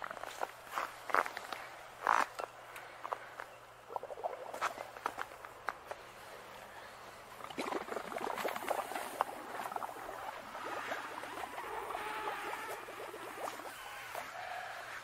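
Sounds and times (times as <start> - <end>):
bubbling and crackling foam: 3.8 - 5.6, 7.2 - 15.0.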